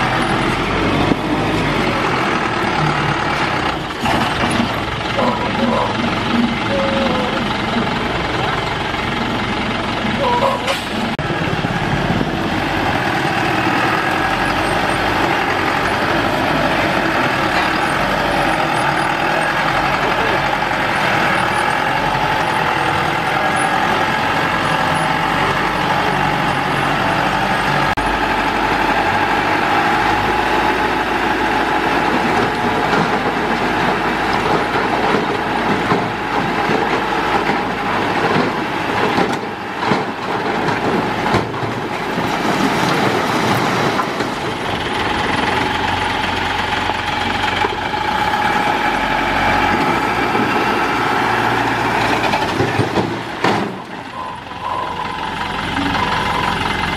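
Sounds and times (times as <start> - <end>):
diesel truck engine running: 0.0 - 56.9
soil and rocks tumbling: 32.1 - 45.6.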